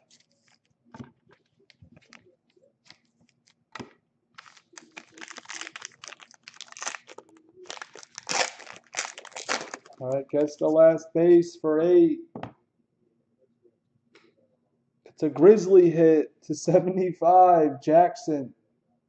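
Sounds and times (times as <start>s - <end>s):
wrapper tearing and crinkling: 4.4s - 10.2s.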